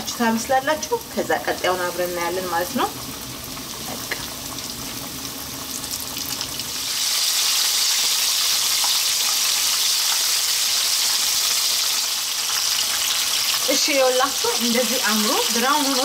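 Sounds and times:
oil sizzling and crackling: 0:00.0 - 0:16.0.

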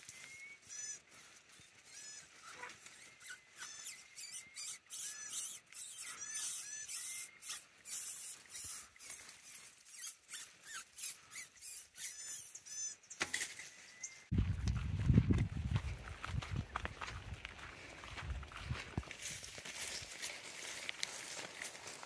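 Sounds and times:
squeaky animal calls: 0:00.0 - 0:13.2
rustle: 0:07.4 - 0:10.8, 0:18.7 - 0:22.0.

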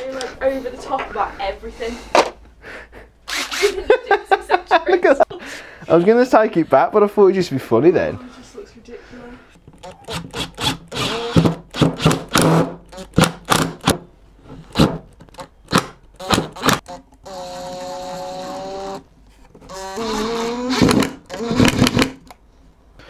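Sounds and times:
cordless driver motor running: 0:16.2 - 0:19.0, 0:19.7 - 0:22.0.

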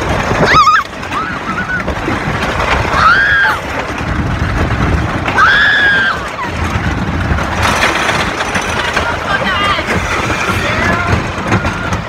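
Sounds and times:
roller coaster track rumble: 0:00.0 - 0:12.0
wind noise: 0:00.0 - 0:12.0
riders screaming: 0:00.3 - 0:03.9, 0:05.2 - 0:06.9.

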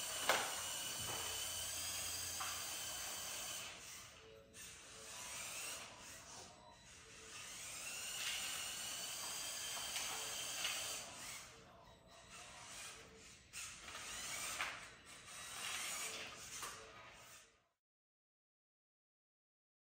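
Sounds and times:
electric motor whine: 0:00.0 - 0:11.7.

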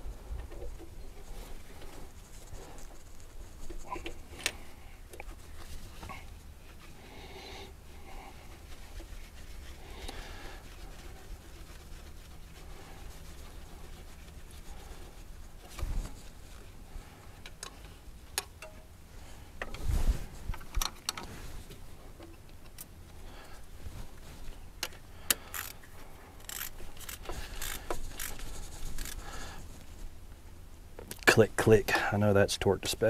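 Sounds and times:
ratchet tightening bolt: 0:25.3 - 0:25.8, 0:26.4 - 0:29.2.

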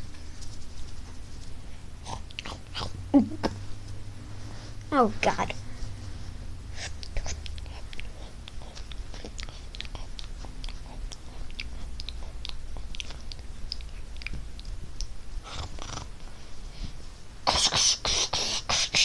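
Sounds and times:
fabric rustling and rubbing: 0:00.0 - 0:01.9, 0:03.6 - 0:06.6
breathy hiss: 0:15.4 - 0:19.0.

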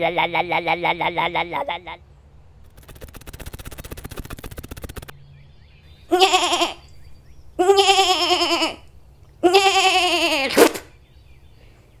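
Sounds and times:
rapid clatter: 0:02.6 - 0:05.1
wavering goat-like bleats: 0:06.1 - 0:06.9, 0:07.6 - 0:10.6.

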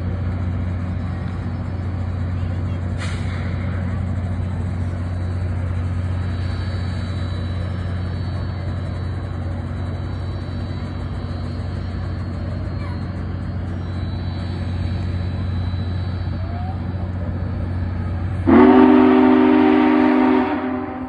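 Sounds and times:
diesel engines idling: 0:00.0 - 0:21.0.

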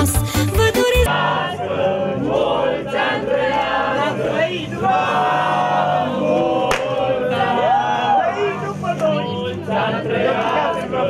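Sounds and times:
crowd cheering and shouting: 0:06.7 - 0:08.8.

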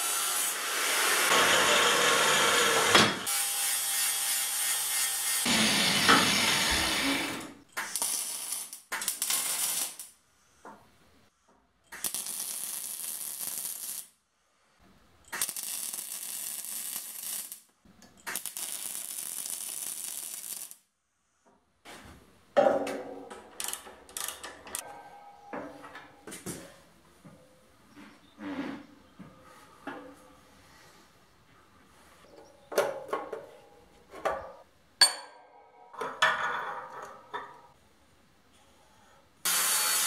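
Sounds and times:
welding arc crackling and hissing: 0:03.6 - 0:10.1, 0:11.9 - 0:14.1, 0:15.3 - 0:17.7, 0:18.3 - 0:20.8
wrench clicking on metal: 0:23.6 - 0:24.8.

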